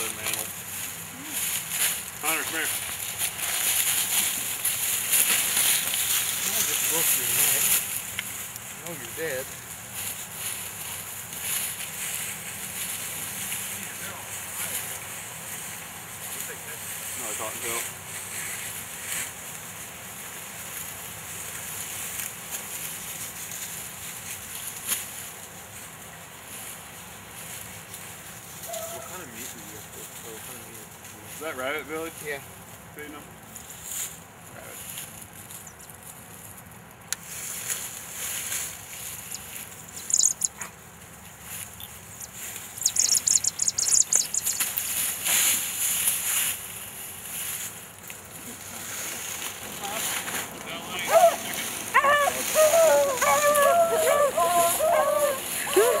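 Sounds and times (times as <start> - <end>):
dry leaves rustling and crackling: 0.0 - 56.0.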